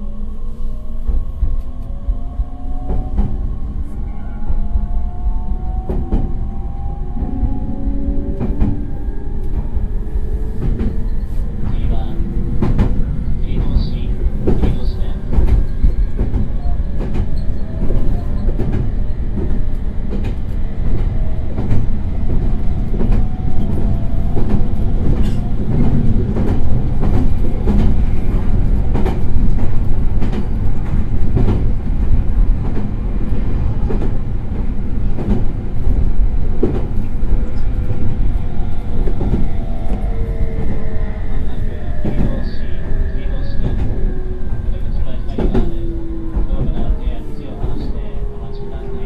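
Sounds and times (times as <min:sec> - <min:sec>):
electric train rumbling: 0:00.0 - 0:49.0.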